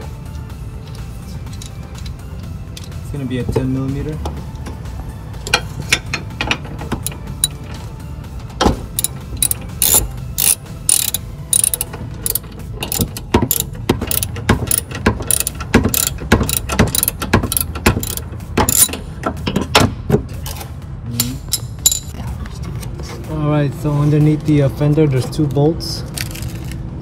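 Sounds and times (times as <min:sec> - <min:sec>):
socket ratchet clicking: 0:09.0 - 0:19.5, 0:21.5 - 0:22.1.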